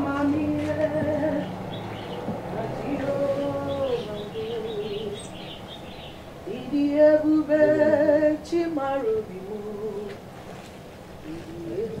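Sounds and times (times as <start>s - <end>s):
woman singing held notes: 6.5s - 8.6s.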